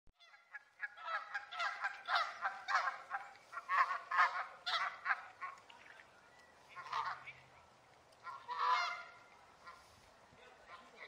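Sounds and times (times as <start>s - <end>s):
goose honking: 0.2s - 5.6s, 6.7s - 7.4s, 8.2s - 10.0s.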